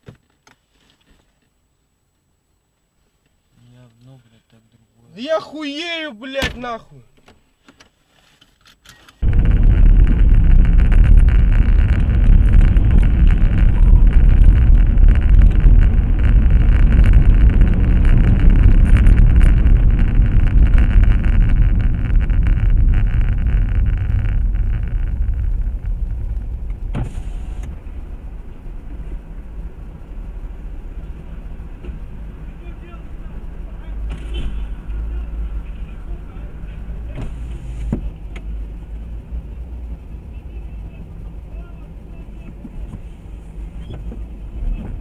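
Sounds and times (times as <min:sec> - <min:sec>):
car road and engine noise: 0:07.2 - 0:45.0.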